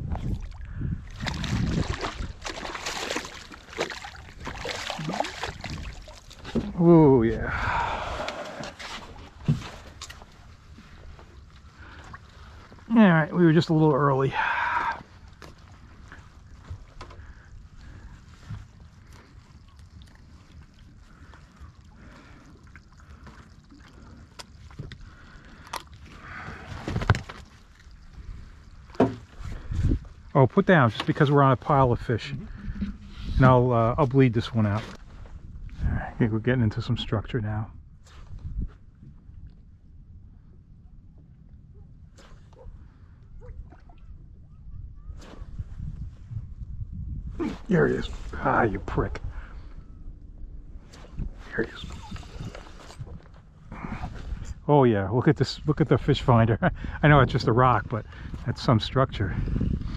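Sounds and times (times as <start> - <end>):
rumble of wind and water: 0.0 - 59.9
fish splashing in water: 0.4 - 6.6
fish handling clicks and rustles: 8.2 - 12.8, 22.5 - 30.2.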